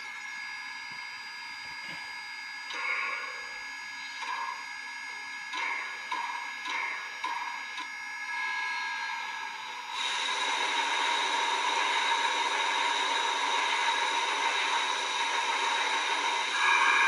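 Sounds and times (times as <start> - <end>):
model steam locomotive hiss: 9.8 - 17.0.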